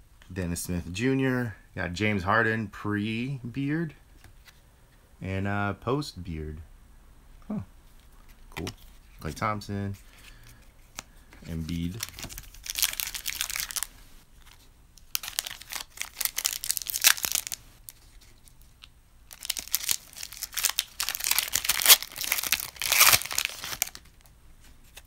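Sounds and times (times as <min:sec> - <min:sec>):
plastic wrapper crinkling and tearing: 0:10.2 - 0:25.0.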